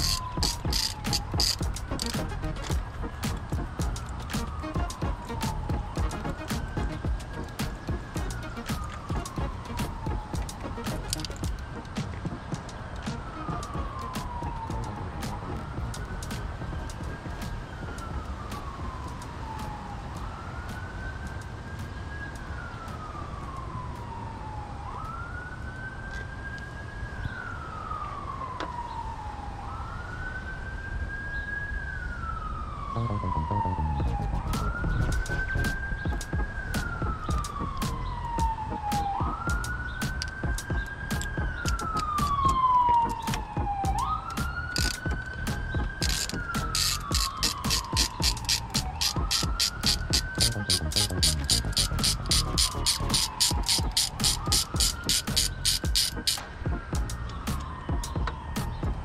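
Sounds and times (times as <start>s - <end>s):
ratchet clicking: 0.0s - 2.8s, 46.0s - 56.4s
siren wailing: 0.0s - 59.0s.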